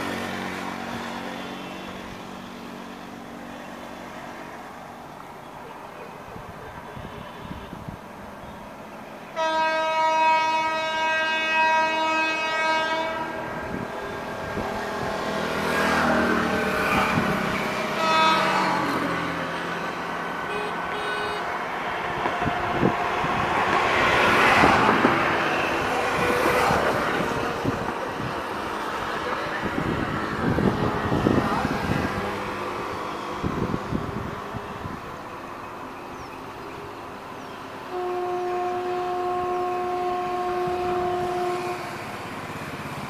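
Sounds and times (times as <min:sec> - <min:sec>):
train rumbling on track: 0:00.0 - 0:43.0
locomotive horn: 0:06.8 - 0:07.8, 0:09.3 - 0:13.9, 0:16.8 - 0:21.6, 0:37.9 - 0:42.2.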